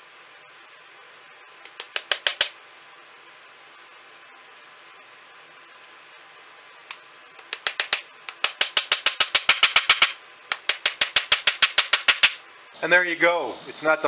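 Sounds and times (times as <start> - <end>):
small hammer striking nails: 1.7 - 2.6, 7.4 - 12.4.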